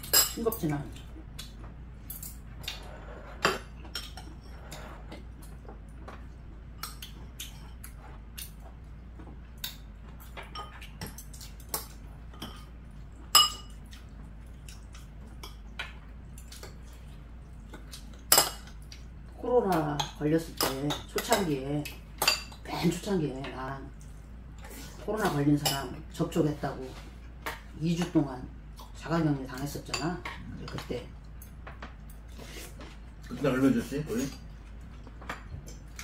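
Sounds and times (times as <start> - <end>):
utensils clinking on ceramic bowls: 13.3 - 13.8.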